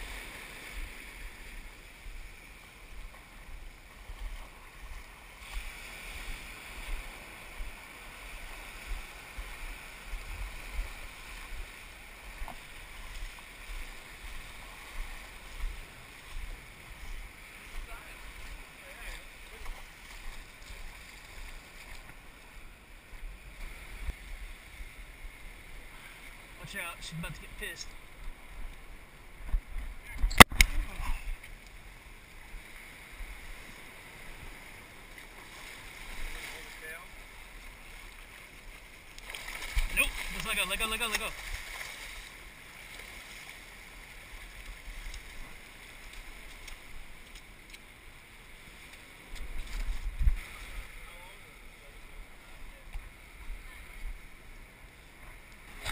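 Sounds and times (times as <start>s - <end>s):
shallow surf washing: 0.0s - 55.9s
faint clicks: 46.0s - 47.9s.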